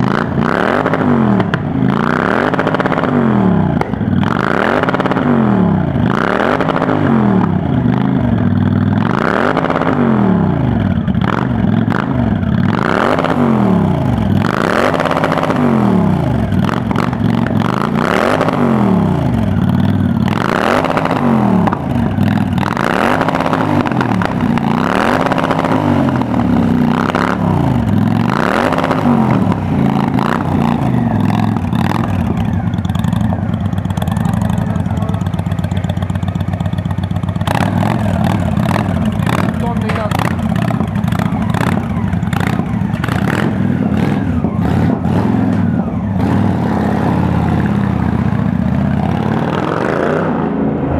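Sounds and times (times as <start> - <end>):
motorcycle engine revving: 0.0 - 50.9
motorcycle engine idling: 7.4 - 9.4, 10.0 - 49.5.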